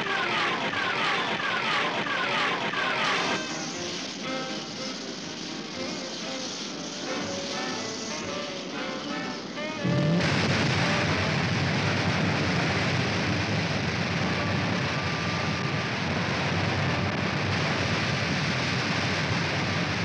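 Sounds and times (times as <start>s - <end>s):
cartoon jet engine rushing: 0.0s - 13.3s.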